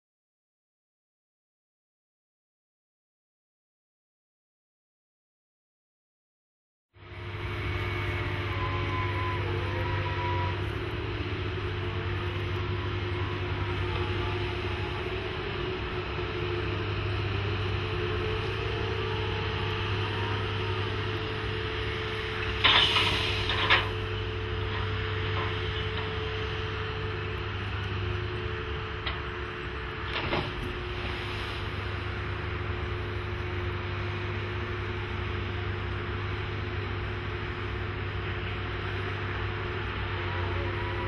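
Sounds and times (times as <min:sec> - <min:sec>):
crane engine running: 0:07.0 - 0:41.0
short loud noisy burst: 0:22.1 - 0:24.3.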